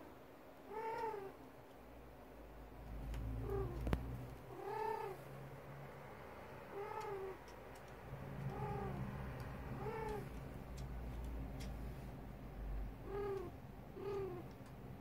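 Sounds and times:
cat meowing: 0.7 - 1.4, 4.5 - 5.2, 6.7 - 7.4, 9.7 - 10.3, 13.0 - 14.5.

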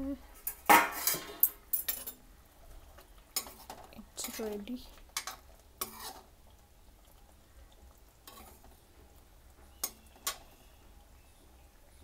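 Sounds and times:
spoon stirring thick gravy: 1.0 - 11.8
spoon clicking against pan: 9.8 - 10.4.

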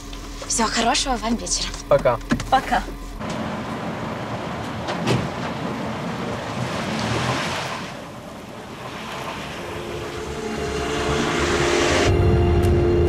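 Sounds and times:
car driving off: 3.2 - 13.0
soft music: 9.4 - 13.0.

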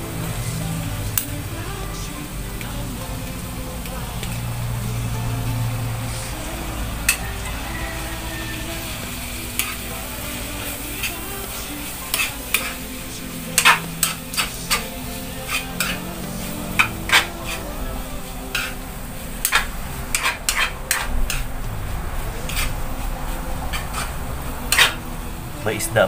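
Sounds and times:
food sizzling: 0.0 - 26.0
metal spatula scraping a pan: 4.2 - 21.6, 22.2 - 25.1.

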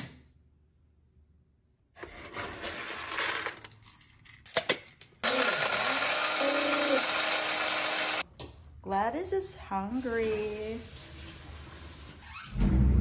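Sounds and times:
electric coffee grinder grinding: 5.2 - 8.2.

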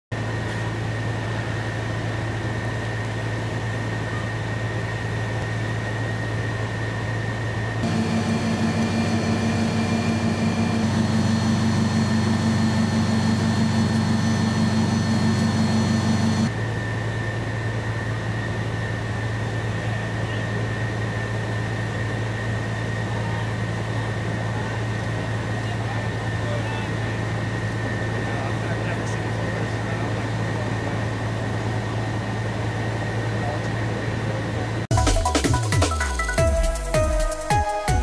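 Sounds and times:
diesel engine humming: 0.2 - 18.2.

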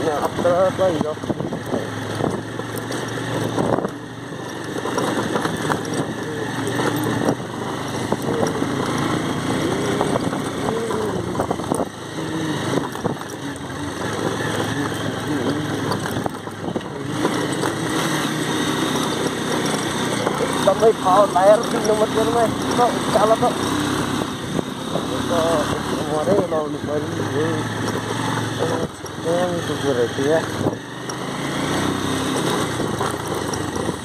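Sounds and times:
knocks and rattles from bumps: 0.0 - 34.0
motorcycle engine running: 0.0 - 34.0.

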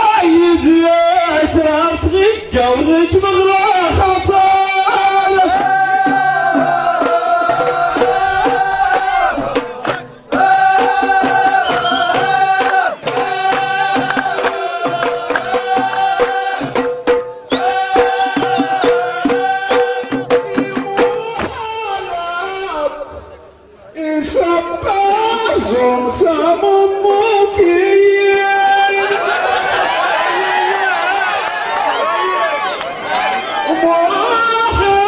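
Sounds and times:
men singing long held notes: 0.0 - 23.2
drum beat: 3.1 - 22.1.

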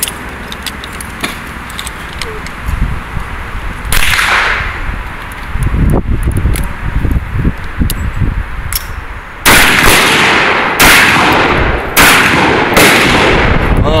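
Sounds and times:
light clicks of gun handling: 0.0 - 2.6
revolver gunshots with echo: 3.9 - 4.8, 9.4 - 13.6.

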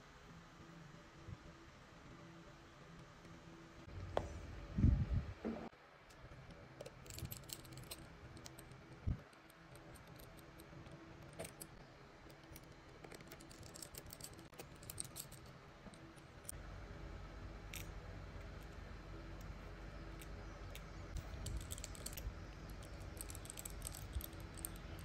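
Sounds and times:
small tools clicking on plastic: 20.2 - 25.0.

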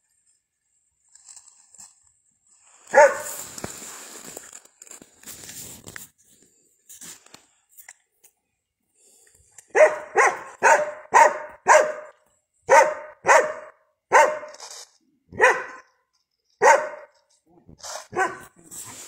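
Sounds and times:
dog barking: 2.9 - 3.4, 9.7 - 14.6, 15.3 - 15.9, 16.6 - 17.2, 18.1 - 18.6.

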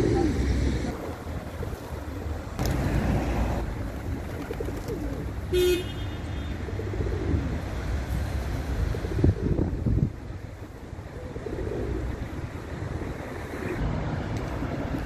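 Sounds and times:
pigeons cooing: 0.0 - 5.5, 6.5 - 7.7, 8.8 - 9.9, 10.6 - 13.8
pigeon wings flapping: 2.6 - 5.4.

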